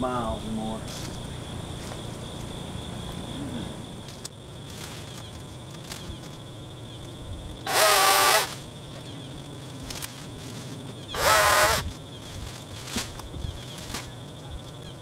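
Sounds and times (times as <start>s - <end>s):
high insect trill: 0.0s - 15.0s
chainsaw cutting branch: 7.7s - 8.6s, 11.2s - 11.9s.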